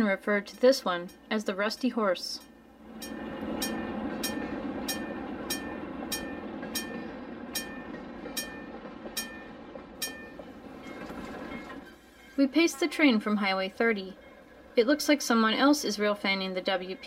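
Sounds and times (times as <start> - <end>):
model train rumbling: 0.2 - 17.0.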